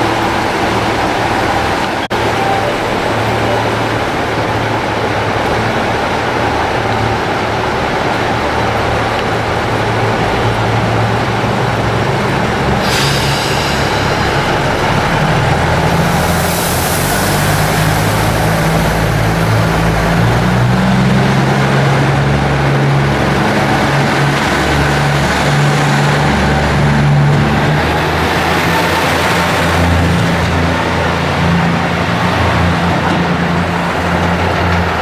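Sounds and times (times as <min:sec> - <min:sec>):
diesel railcar engine idling: 0:00.0 - 0:35.0
higher hiss: 0:12.7 - 0:19.6
hiss: 0:12.8 - 0:19.4.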